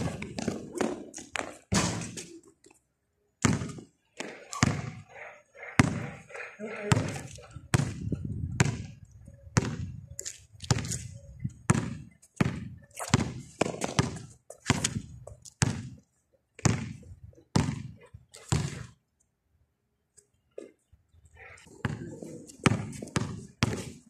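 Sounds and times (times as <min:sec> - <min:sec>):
basketball dribbling on concrete: 0:00.0 - 0:02.2, 0:03.4 - 0:05.0, 0:05.7 - 0:09.0, 0:09.6 - 0:10.0, 0:11.6 - 0:16.0, 0:16.6 - 0:19.0, 0:21.8 - 0:24.0.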